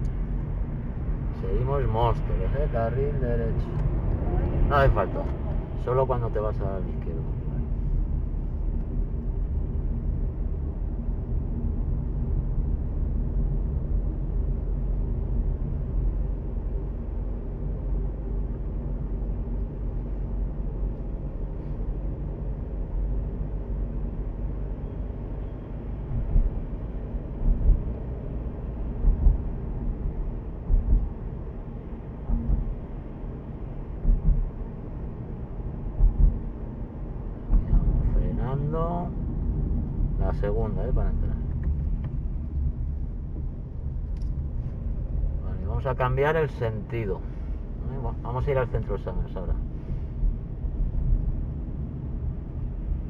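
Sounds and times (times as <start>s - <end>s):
car engine and tyre rumble: 0.0s - 53.0s
low thumps: 27.4s - 28.0s, 28.9s - 38.2s.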